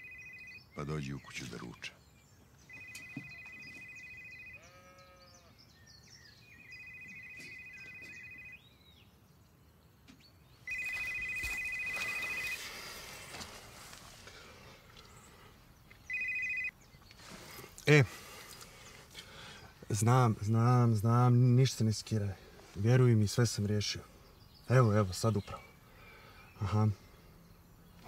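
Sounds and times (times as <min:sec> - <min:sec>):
phone ringing two-tone trill: 0:00.0 - 0:00.6, 0:02.7 - 0:05.2, 0:06.6 - 0:08.6, 0:10.7 - 0:12.6, 0:16.1 - 0:16.7
farm animal bleating: 0:04.3 - 0:05.7.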